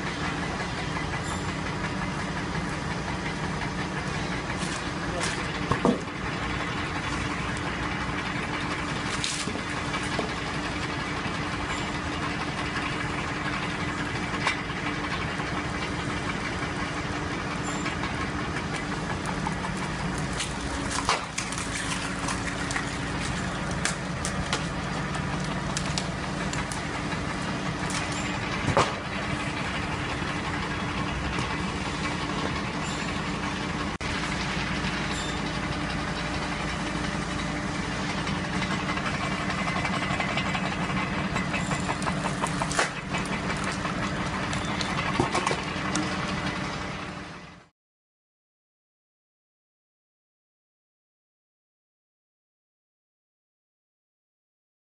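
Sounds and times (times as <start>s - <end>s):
log splitter running: 0.0s - 47.7s
wood cracking apart: 8.9s - 10.4s, 18.8s - 29.0s, 41.6s - 46.1s.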